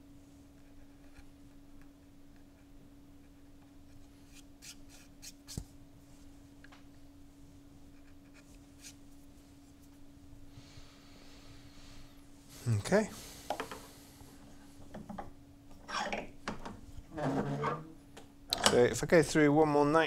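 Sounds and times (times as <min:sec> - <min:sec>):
steady low hum: 0:00.0 - 0:20.0
carving tool scratching wood: 0:04.0 - 0:05.6.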